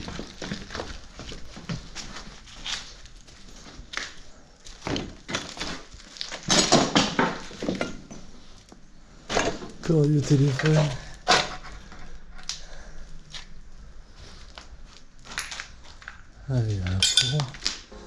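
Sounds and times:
footsteps: 0.0 - 6.4
junk knocking and rustling: 4.7 - 8.4, 10.5 - 12.2.

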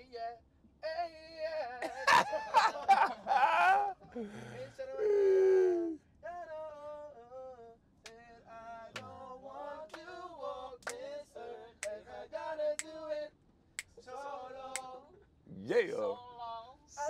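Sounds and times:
person singing slow melody: 3.5 - 7.3.

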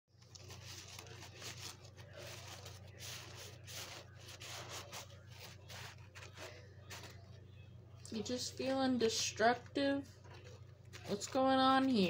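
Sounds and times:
cat scratching plastic and cardboard: 0.2 - 7.3.

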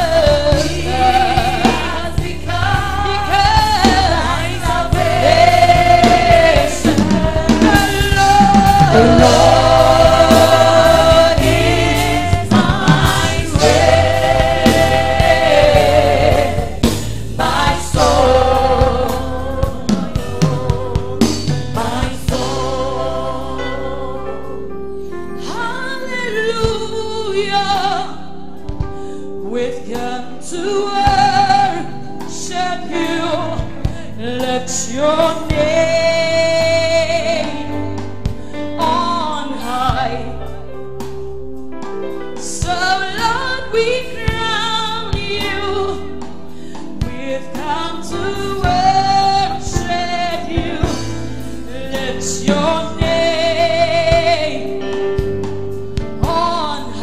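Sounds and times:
woman singing with vibrato: 0.0 - 23.3
instrumental accompaniment: 0.0 - 57.0.

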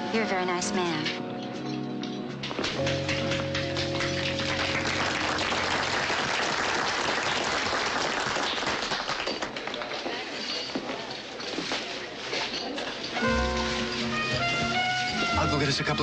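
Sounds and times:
crowd applauding: 2.6 - 10.0.

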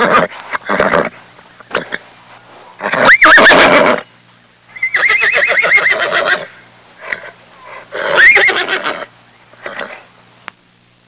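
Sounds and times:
horse whinnying: 2.8 - 4.0, 4.8 - 6.5, 7.9 - 10.0.

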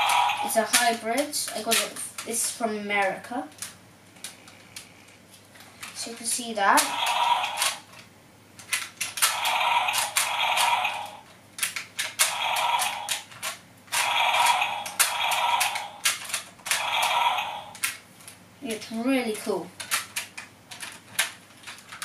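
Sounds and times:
toy dinosaur electronic roar: 0.0 - 0.6, 6.8 - 7.9, 9.2 - 11.2, 12.2 - 13.3, 14.0 - 16.1, 16.7 - 17.9.

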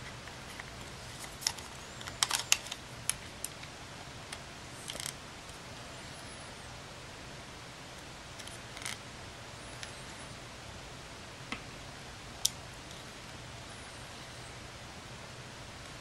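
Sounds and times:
low hum and hiss: 0.0 - 16.0.

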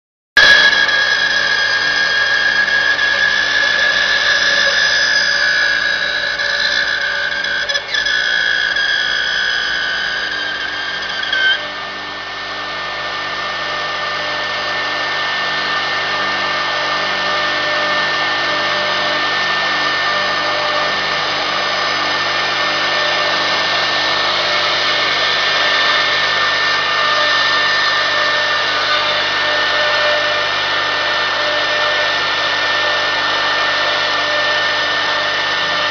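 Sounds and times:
cutting wood: 0.4 - 35.9
router spindle high whine: 0.4 - 35.9.

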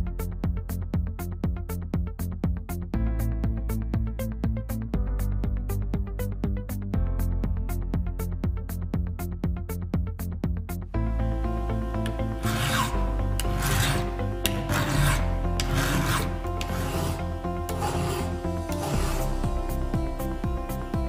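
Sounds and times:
background music: 0.0 - 21.0
file rasping on chainsaw chain: 12.4 - 19.3.

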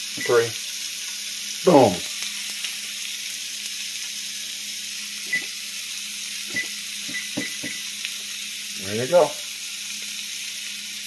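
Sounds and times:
meat sizzling in a frying pan: 0.0 - 11.0
short electronic beeps: 5.3 - 5.6, 6.5 - 7.8.

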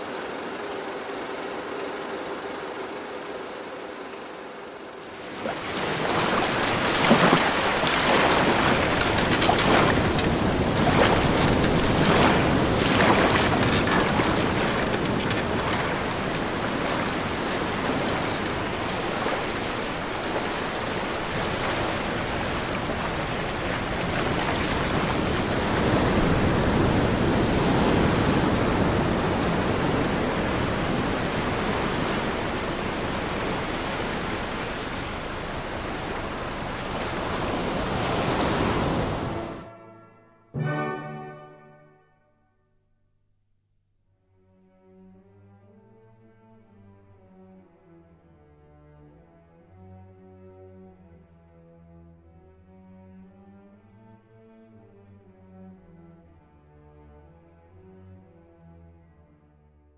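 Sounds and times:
ocean surf washing: 4.9 - 39.7
waves crashing: 5.1 - 39.7.

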